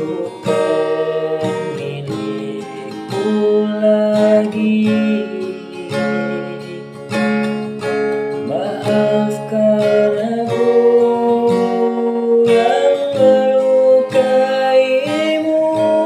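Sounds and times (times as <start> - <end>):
strummed acoustic guitar ballad: 0.0 - 16.0.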